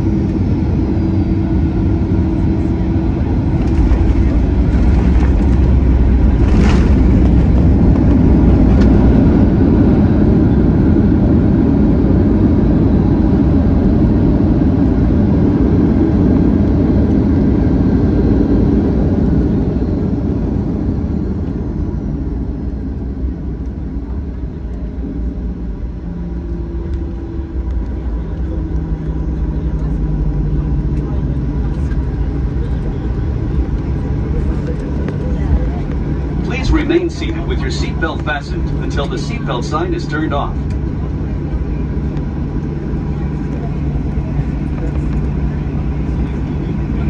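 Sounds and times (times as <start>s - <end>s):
jet engines roaring: 0.0s - 47.0s
rushing air in cabin: 1.8s - 11.1s, 31.0s - 47.0s.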